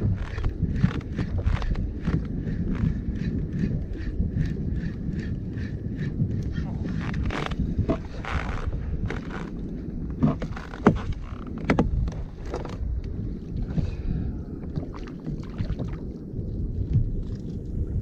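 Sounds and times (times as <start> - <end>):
water slapping plastic hull: 0.0 - 13.9, 14.7 - 17.6
wind buffeting microphone: 0.0 - 18.0
sharp knocks on kayak: 10.2 - 12.7.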